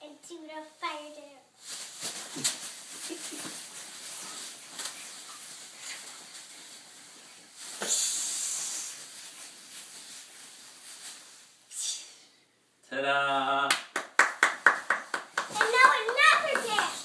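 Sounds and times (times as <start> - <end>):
loud hiss: 7.8 - 9.1
children dancing on a bed: 13.9 - 17.0.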